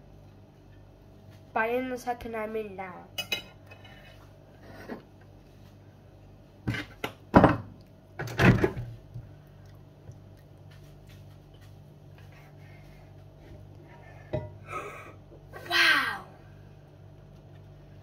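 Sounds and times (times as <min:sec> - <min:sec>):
steady low hum: 0:00.0 - 0:18.0
dishes clinking: 0:03.2 - 0:04.2, 0:14.3 - 0:14.6
dishes knocking and clattering: 0:06.7 - 0:08.9, 0:14.3 - 0:14.6.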